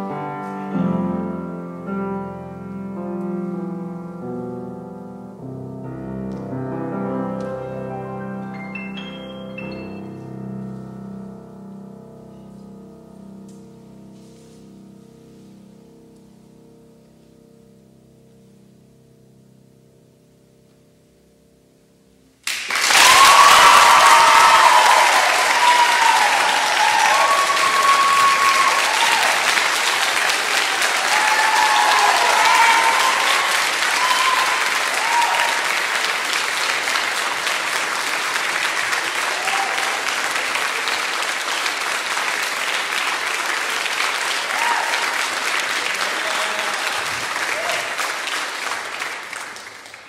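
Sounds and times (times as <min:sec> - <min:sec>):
audience applause: 0:22.4 - 0:50.0
whoops and cheers: 0:22.8 - 0:29.8, 0:30.6 - 0:35.8, 0:39.2 - 0:40.1, 0:44.3 - 0:45.3, 0:46.0 - 0:48.1.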